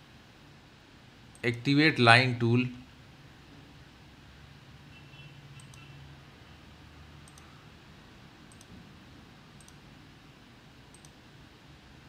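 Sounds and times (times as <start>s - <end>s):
low steady room hum: 0.0s - 12.0s
faint computer mouse clicks: 5.6s - 5.9s, 7.2s - 7.5s, 8.5s - 8.8s, 9.6s - 9.8s, 10.9s - 11.2s.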